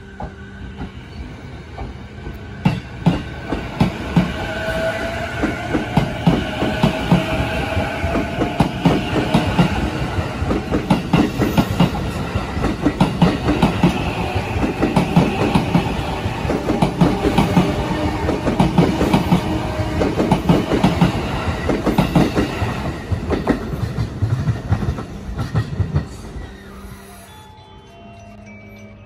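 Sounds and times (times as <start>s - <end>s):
traction motor whine: 26.2s - 28.7s.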